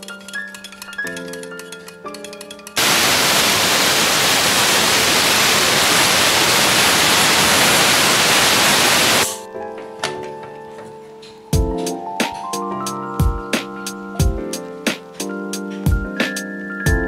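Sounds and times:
pressure cooker hissing steam: 2.8s - 9.4s.

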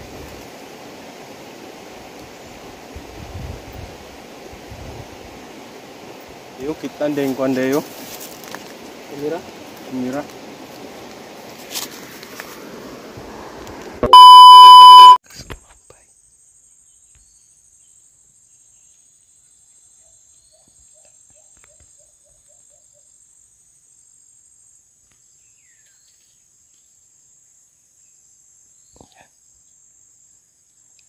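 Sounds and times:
electronic beep: 14.0s - 15.2s
faint high buzz: 14.0s - 15.2s.

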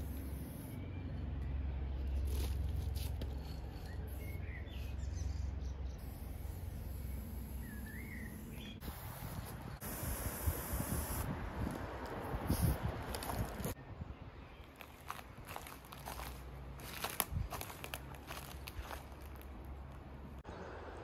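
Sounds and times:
bird chirping: 3.7s - 6.2s, 7.0s - 9.8s
spray can hissing: 6.0s - 11.3s
scuffing and handling noises: 14.6s - 20.0s.

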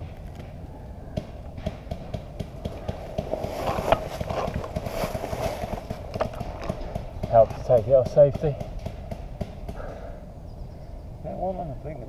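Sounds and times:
footsteps on dry leaves: 2.7s - 6.8s.

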